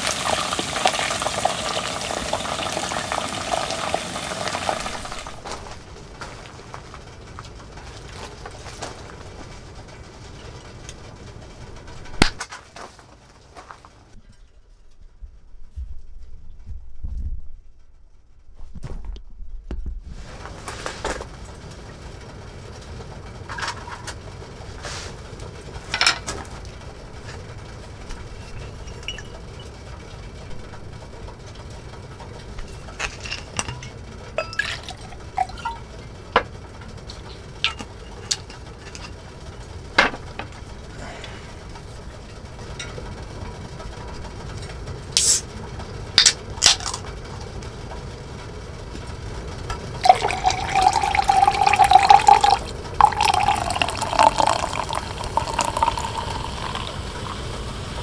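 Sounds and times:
steady low hum: 4.7 - 58.0
utensils clinking on dishes: 28.4 - 29.7, 32.6 - 35.8, 37.6 - 39.2.

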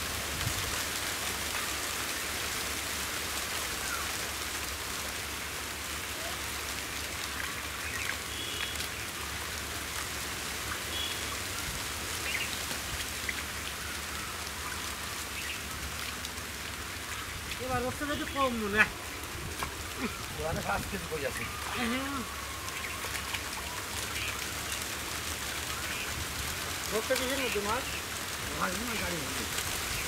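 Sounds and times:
water hissing: 1.1 - 24.7.

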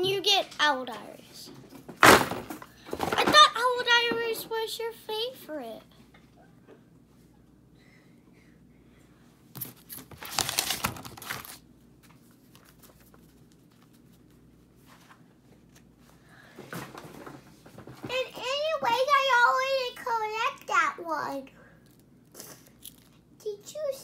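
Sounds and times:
crinkling and rustling: 9.6 - 16.0, 16.6 - 18.4.

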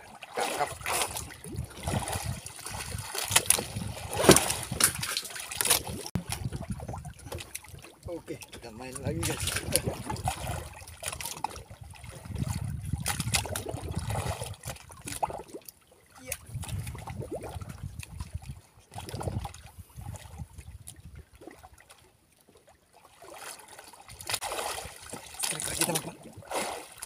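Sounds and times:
water lapping against boat hull: 0.0 - 27.0.

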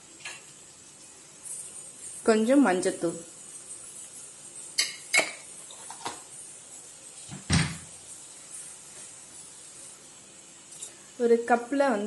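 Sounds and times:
spoon stirring in steel pan: 1.4 - 7.3
spoon knocking against pan: 4.8 - 6.2.

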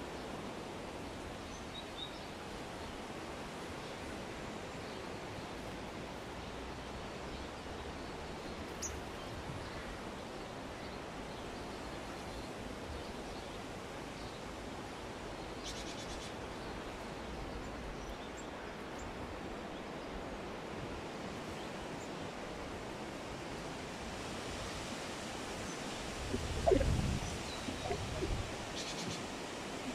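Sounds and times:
rural ambience hiss: 0.0 - 29.9
faint bird chirps: 26.3 - 29.3.

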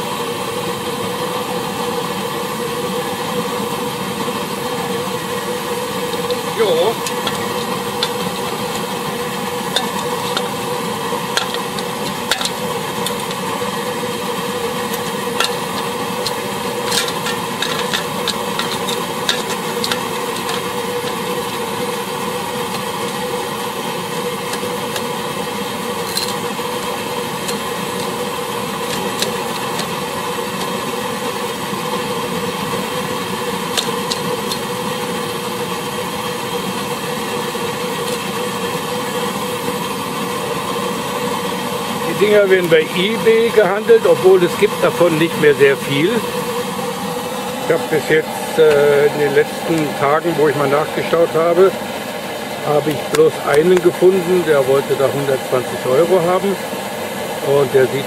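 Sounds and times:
petrol burner humming and hissing: 0.0 - 58.0
metal lid clicks and knocks: 7.0 - 8.8, 9.7 - 10.6, 11.3 - 13.4, 14.9 - 21.4, 26.0 - 26.5, 27.4 - 30.8, 33.7 - 34.7.

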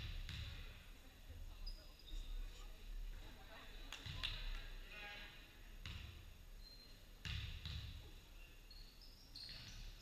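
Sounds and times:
basketball bouncing on gym court: 0.0 - 0.8, 5.8 - 6.2, 7.2 - 8.1
sneakers squeaking on floor: 5.8 - 10.0.

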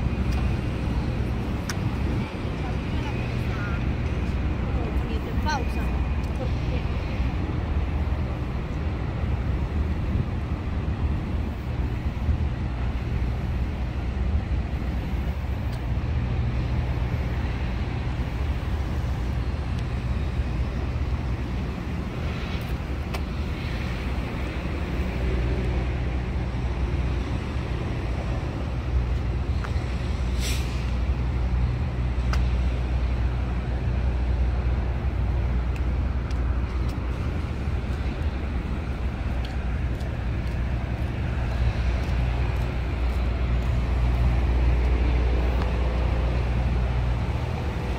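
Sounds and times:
passing cars rumbling: 0.0 - 47.9
brief hiss: 30.3 - 31.0.

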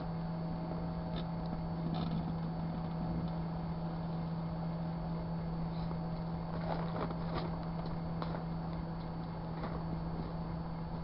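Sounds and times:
microwave oven hum: 0.0 - 11.0.

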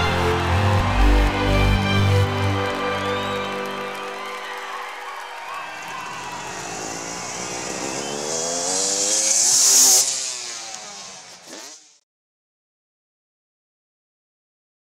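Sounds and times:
motorbike engine revving: 5.5 - 12.0.

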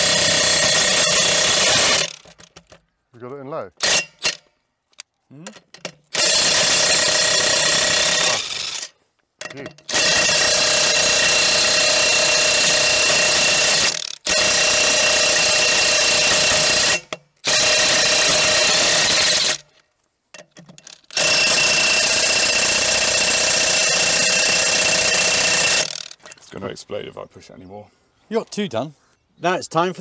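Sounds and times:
impact wrench hammering: 5.8 - 19.7, 20.6 - 26.3.

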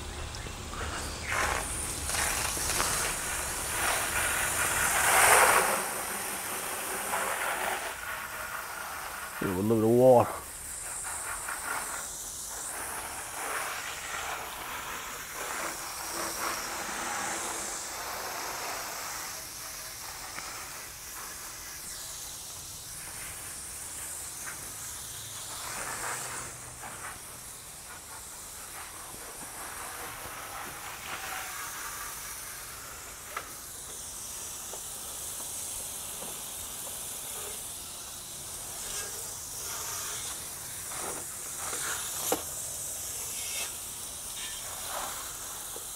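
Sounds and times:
water spraying onto motorcycle: 0.0 - 45.9.

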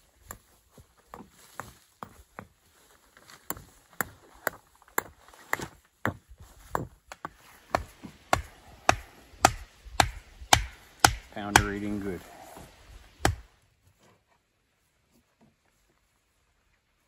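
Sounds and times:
stakes hammered into dirt: 3.5 - 12.2, 13.2 - 13.5.

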